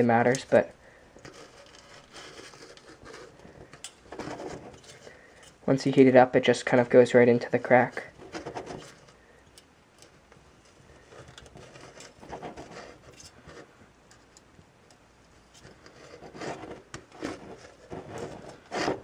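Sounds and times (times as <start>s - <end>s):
soldering iron scraping metal: 15.5s - 19.0s.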